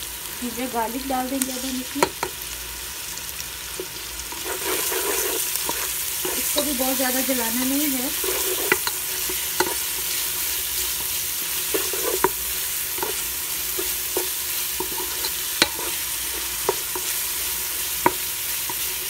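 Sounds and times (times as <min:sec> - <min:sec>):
onion and garlic sizzling in oil: 0:00.0 - 0:19.0.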